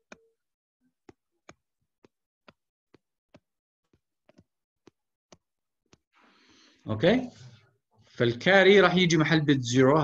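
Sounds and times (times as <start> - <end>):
stylus tapping on a tablet: 0.0 - 0.4, 1.0 - 6.1.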